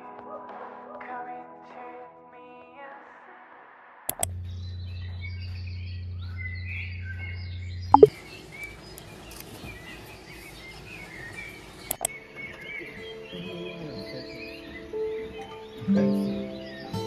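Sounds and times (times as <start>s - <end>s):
small birds chirping: 4.1s - 17.0s.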